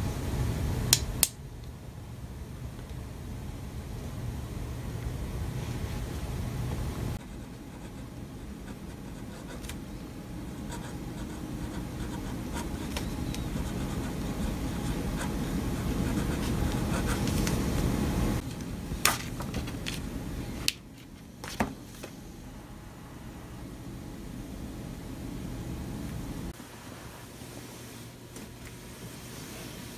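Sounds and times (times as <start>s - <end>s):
pen scratching on paper: 7.3s - 9.8s, 10.5s - 17.5s.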